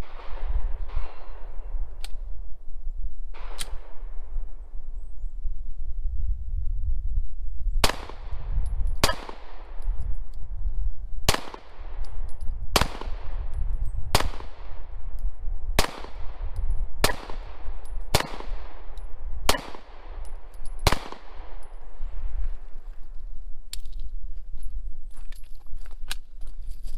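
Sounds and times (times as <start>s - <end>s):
pistol shots echoing: 0.0s - 1.8s, 7.8s - 8.4s, 9.0s - 9.8s, 11.3s - 12.2s, 12.8s - 13.4s, 14.1s - 14.9s, 15.8s - 21.8s.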